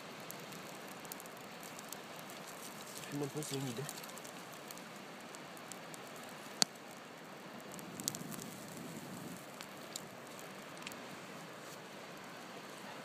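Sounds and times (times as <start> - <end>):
campfire crackling and hissing: 0.0 - 13.0
fire pops: 0.0 - 13.0.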